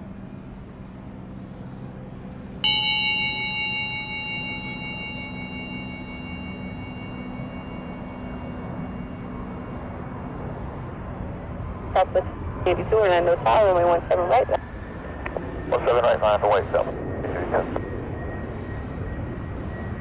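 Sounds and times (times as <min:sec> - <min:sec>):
steady low hum: 0:00.0 - 0:20.0
bell-like chime ringing: 0:02.6 - 0:10.4.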